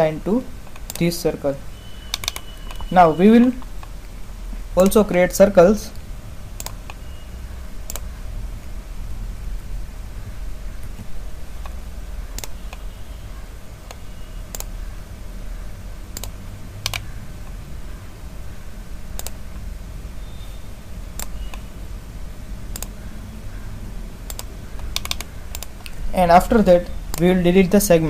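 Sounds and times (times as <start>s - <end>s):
steady low hum: 0.0s - 28.0s
computer mouse clicks: 0.6s - 1.1s, 2.1s - 2.9s, 6.6s - 7.0s, 7.8s - 8.1s, 10.8s - 12.8s, 13.8s - 14.8s, 16.1s - 17.6s, 19.1s - 19.4s, 21.2s - 21.7s, 22.7s - 23.0s, 24.3s - 26.0s, 27.1s - 27.3s.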